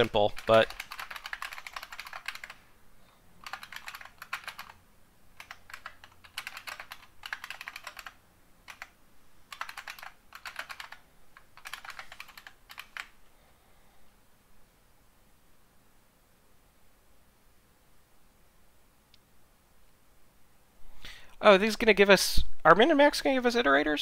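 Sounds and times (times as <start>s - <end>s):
computer keyboard typing: 0.0s - 2.6s, 3.4s - 4.8s, 5.4s - 13.2s.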